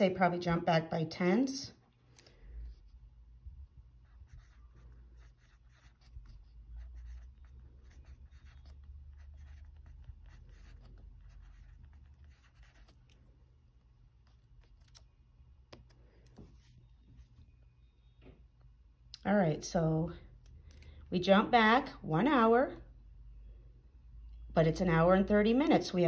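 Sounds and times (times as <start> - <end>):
pen scratching on paper: 4.0 - 13.3.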